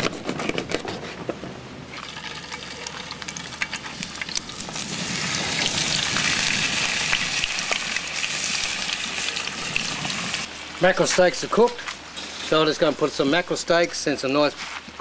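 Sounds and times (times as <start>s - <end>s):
fish sizzling in hot oil: 2.0s - 10.7s.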